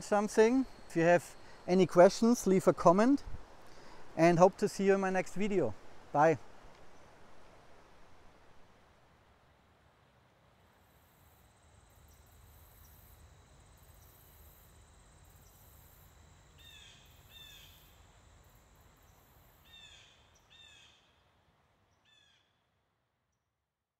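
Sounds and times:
insects buzzing: 0.0s - 4.2s, 10.7s - 20.9s.

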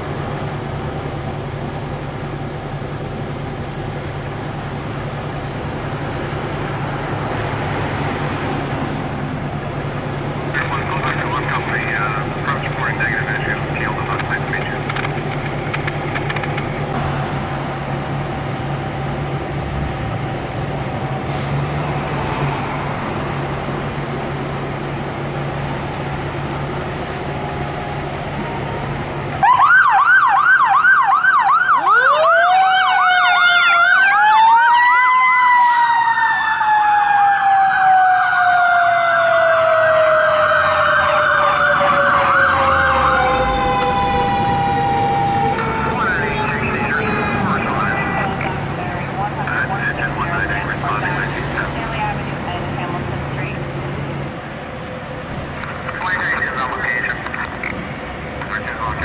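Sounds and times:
low engine rumble: 0.0s - 29.6s, 41.4s - 59.0s
electronic siren yelping and wailing: 29.4s - 48.8s.

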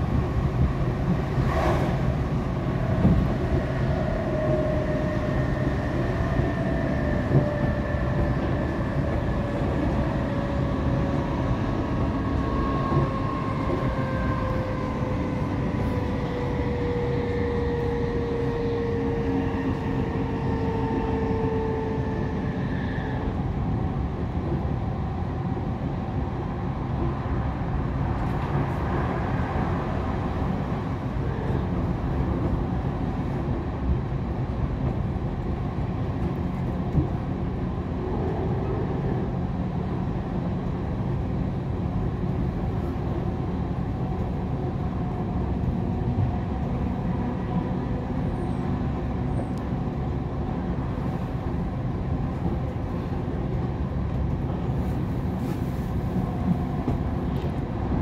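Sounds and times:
wheel and rail rumble: 0.0s - 58.0s.

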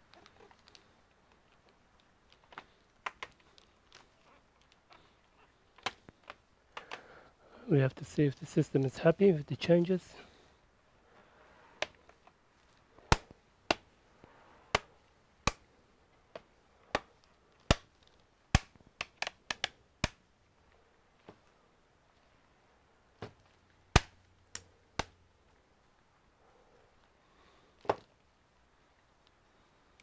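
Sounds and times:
plastic clips snapping into place: 5.8s - 7.0s, 16.3s - 20.2s.

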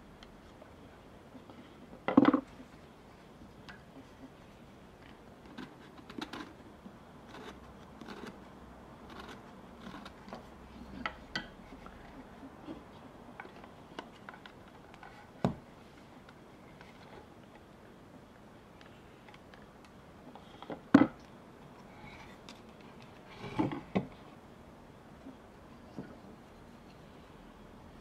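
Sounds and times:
carving tool scraping wood: 7.3s - 8.4s, 9.1s - 10.4s.

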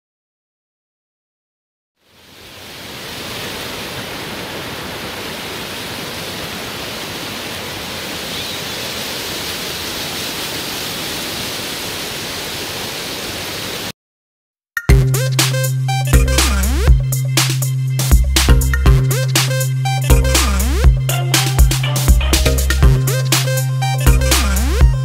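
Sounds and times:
river rapids rushing: 2.4s - 13.9s.

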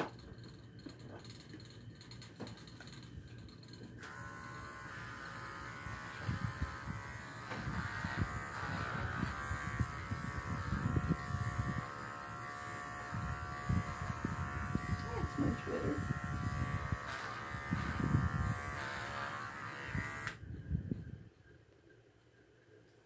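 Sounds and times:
electric clippers buzzing: 4.0s - 20.4s.

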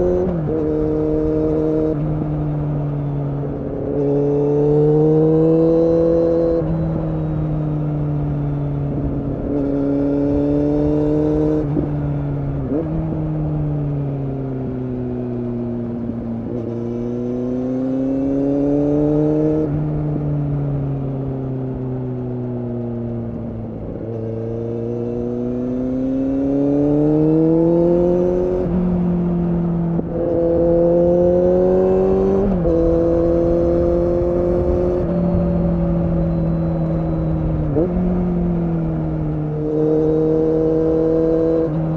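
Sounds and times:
motorcycle engine revving: 0.0s - 41.9s
gear change pitch steps: 25.6s - 41.9s.

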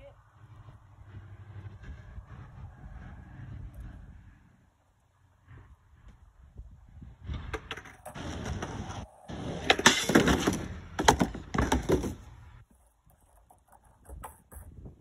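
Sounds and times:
skateboard wheels rolling on concrete: 0.4s - 15.0s
skateboard tail popping: 7.4s - 14.8s
skateboard clattering on wood: 7.5s - 15.0s.

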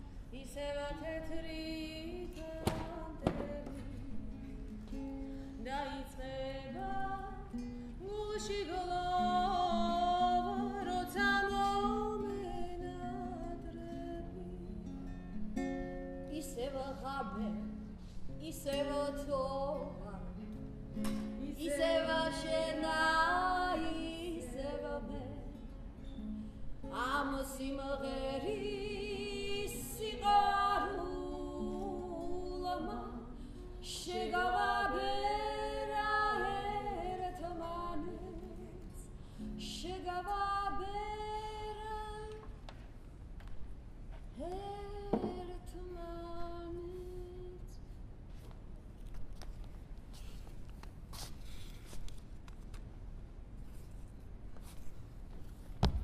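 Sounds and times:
acoustic guitar: 0.0s - 56.0s
woman singing: 0.3s - 4.6s, 5.5s - 14.9s, 16.3s - 20.5s, 21.4s - 25.8s, 26.8s - 42.6s, 44.4s - 47.8s.

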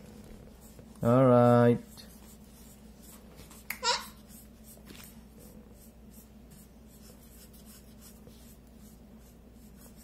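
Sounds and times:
steady low hum: 0.0s - 10.0s
markers scribbling on paper: 1.8s - 10.0s.

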